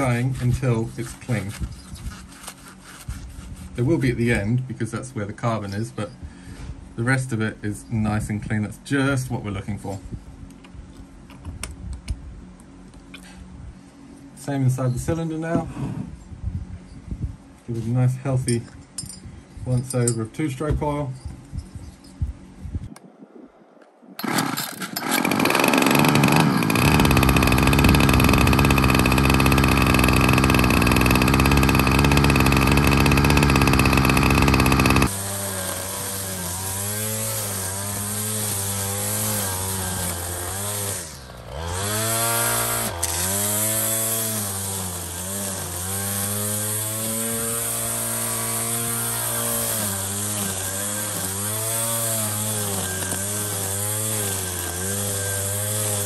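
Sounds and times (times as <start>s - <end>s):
trimmer line cutting grass: 0.0s - 3.7s, 24.2s - 56.0s
string trimmer engine revving: 24.2s - 56.0s.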